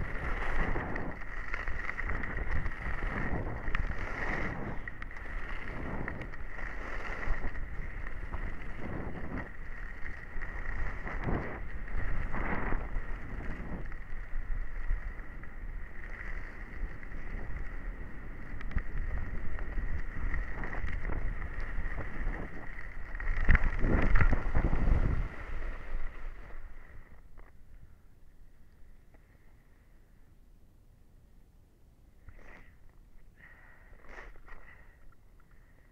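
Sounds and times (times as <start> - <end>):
wind buffeting microphone: 0.0 - 27.1
skis sliding on snow: 0.0 - 27.8, 32.2 - 35.9.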